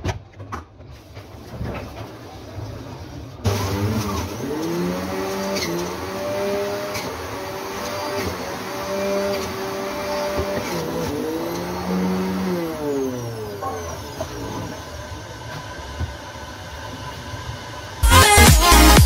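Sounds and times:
juicer motor hum: 0:02.6 - 0:18.1
loud electronic dance music: 0:18.0 - 0:19.0.

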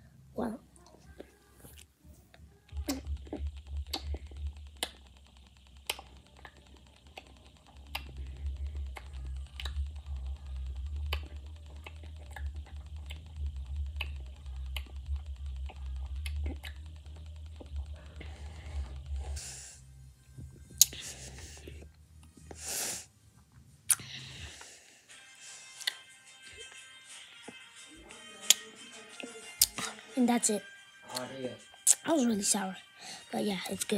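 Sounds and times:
low rumble: 0:02.8 - 0:05.2, 0:07.8 - 0:21.9
wet mouth clicks: 0:02.8 - 0:09.9, 0:11.0 - 0:16.9, 0:20.8 - 0:21.2, 0:23.9 - 0:24.2, 0:25.8 - 0:26.0, 0:29.6 - 0:29.9, 0:31.8 - 0:32.1.

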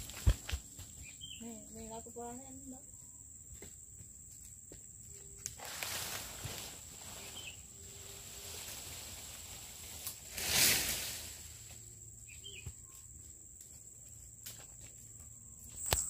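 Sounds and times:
insects buzzing: 0:00.0 - 0:16.0
rustling noise: 0:05.5 - 0:11.9.

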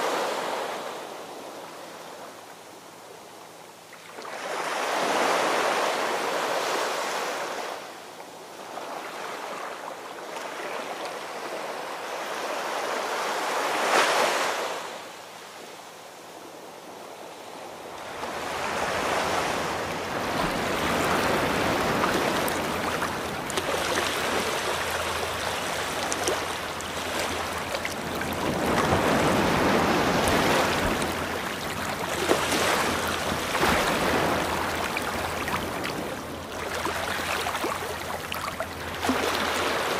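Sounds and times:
ocean waves breaking on shore: 0:00.0 - 0:02.4, 0:04.0 - 0:39.9.

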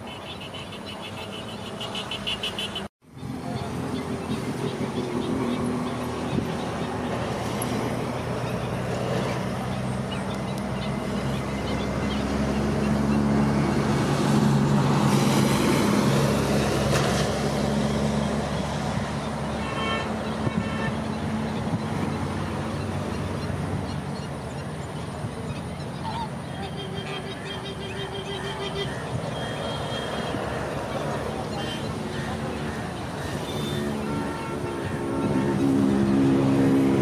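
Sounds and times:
traffic engine rumble: 0:00.0 - 0:37.0
flamingos honking: 0:18.6 - 0:24.0, 0:25.3 - 0:37.0.

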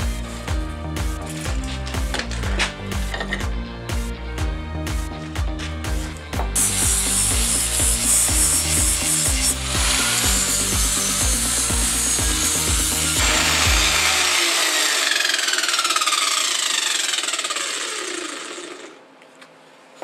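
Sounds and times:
angle grinder grinding steel: 0:06.6 - 0:19.0
grinder disc spinning down whine: 0:09.3 - 0:19.0.

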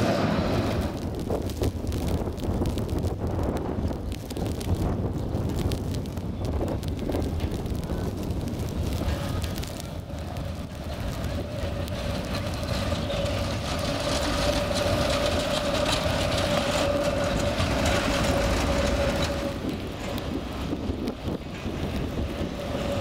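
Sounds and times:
tram motor whine: 0:00.0 - 0:01.2, 0:06.5 - 0:23.0
tram rumbling past: 0:00.0 - 0:23.0.

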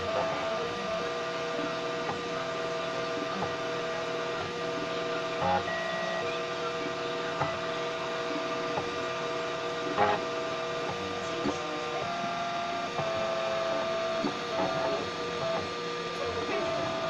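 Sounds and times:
stepper motors whining: 0:00.0 - 0:17.0.

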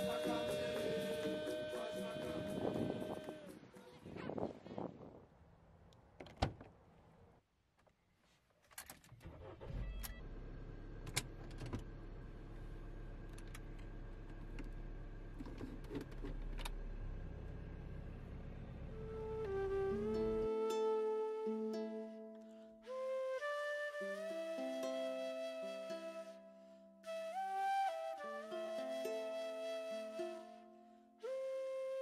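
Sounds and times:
car engine starting and idling: 0:09.0 - 0:20.5.

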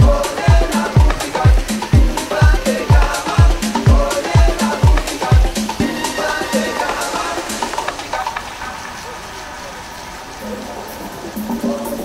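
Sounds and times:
light percussion: 0:00.0 - 0:08.8.

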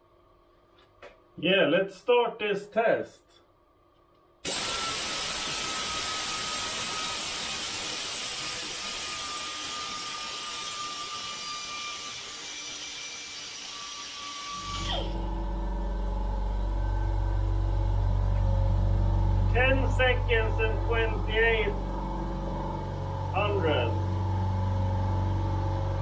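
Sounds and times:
air compressor motor humming: 0:04.4 - 0:09.8, 0:13.9 - 0:26.0
air grinder hissing: 0:04.4 - 0:15.2.

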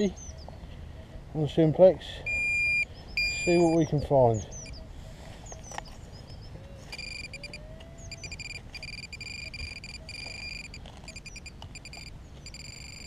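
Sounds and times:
metal detector beeping: 0:02.2 - 0:04.8, 0:06.9 - 0:13.0.

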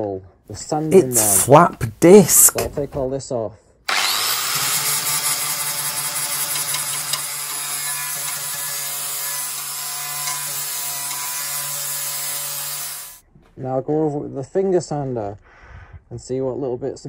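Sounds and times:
angle grinder sanding metal: 0:03.9 - 0:13.2.

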